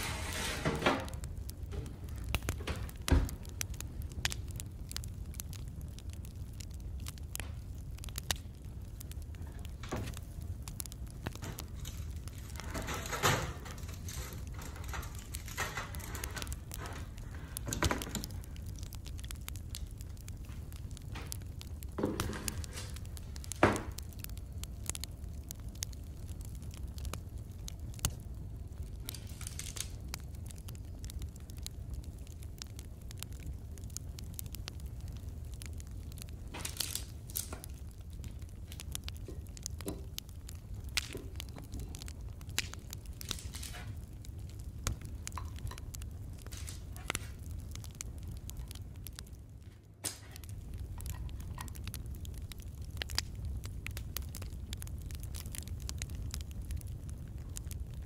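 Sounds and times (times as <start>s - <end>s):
metal baking tray scraping: 0.0s - 1.1s, 12.4s - 16.4s
baking paper rustling: 29.1s - 30.0s, 36.5s - 37.6s.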